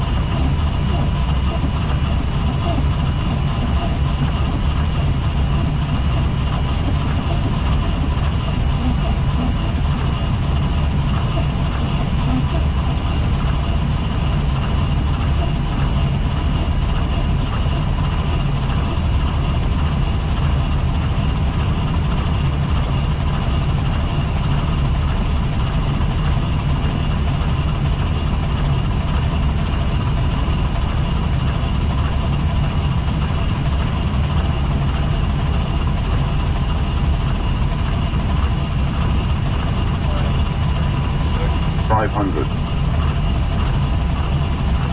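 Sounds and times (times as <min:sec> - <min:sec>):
faint steady whining tones: 0:00.0 - 0:23.3
low rumble of airflow and engines: 0:00.0 - 0:44.9.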